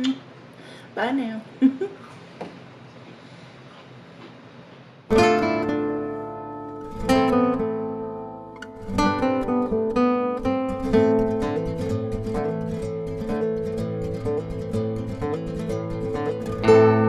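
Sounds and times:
strummed acoustic guitar chords: 5.1s - 17.0s.

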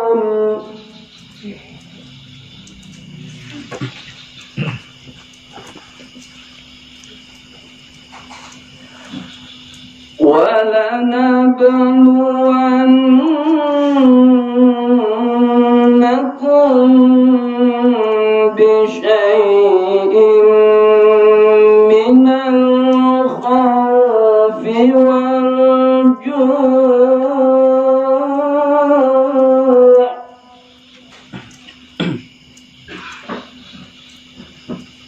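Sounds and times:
man reciting melodically into microphone: 10.2s - 30.2s.

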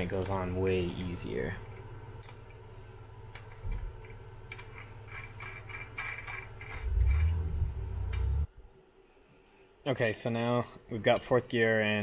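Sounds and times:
metal parts clinking: 4.5s - 7.4s
low rumble: 6.7s - 8.7s.

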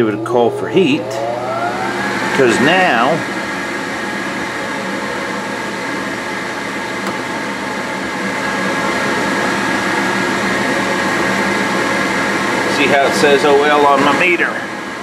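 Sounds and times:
draft inducer motor whirring: 0.0s - 3.4s.

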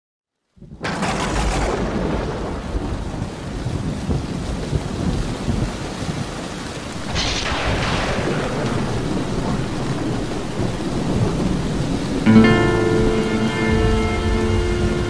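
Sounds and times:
steady rain: 0.3s - 15.0s
rumbling thunder: 0.6s - 15.0s
sharp thunder crash: 0.8s - 3.9s, 6.9s - 15.0s
sustained musical chord: 7.0s - 15.0s.

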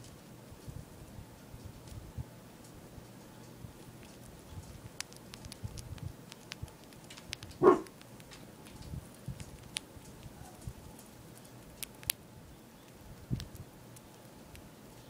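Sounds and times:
hamster nibbling seed: 3.7s - 12.2s, 12.8s - 14.8s.

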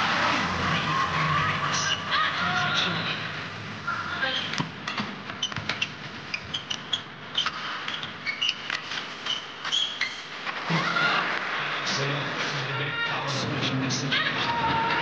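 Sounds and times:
arena crowd noise: 0.0s - 4.6s, 10.4s - 15.0s
shoes squeaking on court: 5.4s - 10.6s.

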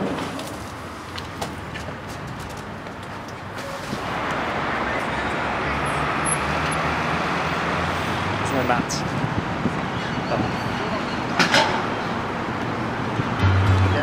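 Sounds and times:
vehicle rushing past: 4.0s - 9.9s.

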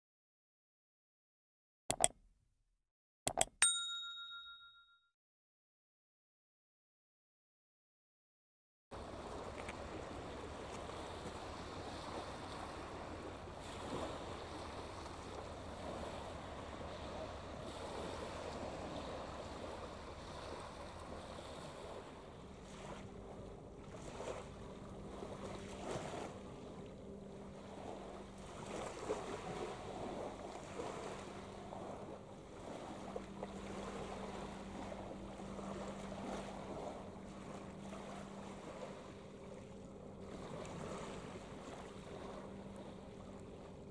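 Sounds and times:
faint harbour water: 3.3s - 5.0s, 8.9s - 43.9s
small waves lapping on shingle: 9.0s - 43.8s
ship engine hum: 9.0s - 43.9s
wind rumble on microphone: 9.0s - 43.9s.

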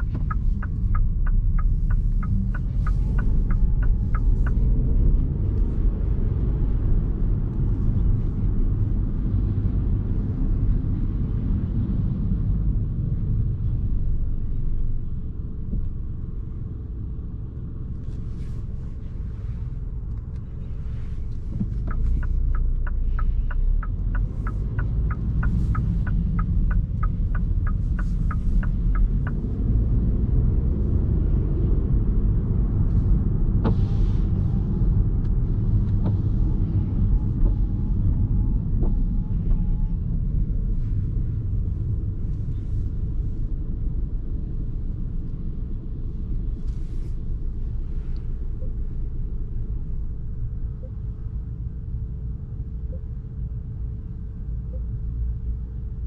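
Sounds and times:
turn signal ticking: 0.0s - 6.5s, 20.0s - 31.9s, 32.8s - 43.3s, 47.4s - 51.2s
road and tyre rumble: 0.0s - 56.0s.

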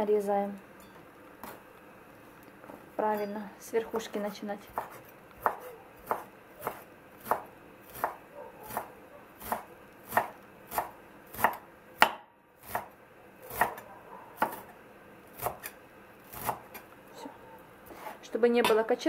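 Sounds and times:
knife chopping on wooden board: 4.7s - 12.9s, 13.5s - 14.7s, 15.4s - 15.7s, 16.3s - 16.8s.

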